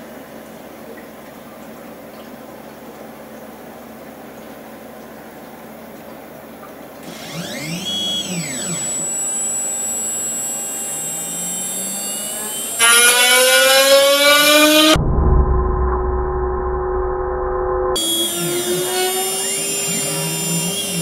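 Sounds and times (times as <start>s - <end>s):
motor whine: 7.0s - 15.0s, 15.9s - 21.0s
spindle whine climbing in pitch: 7.0s - 21.0s.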